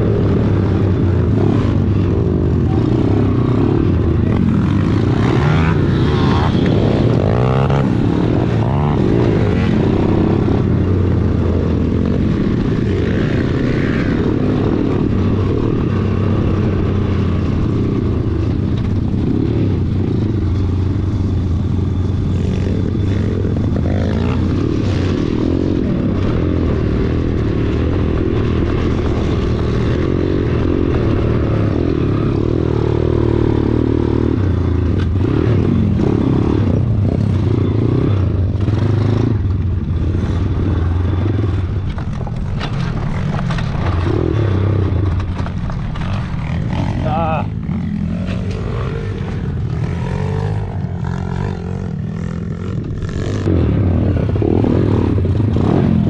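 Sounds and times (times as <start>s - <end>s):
pit bike engine running: 0.0s - 56.0s.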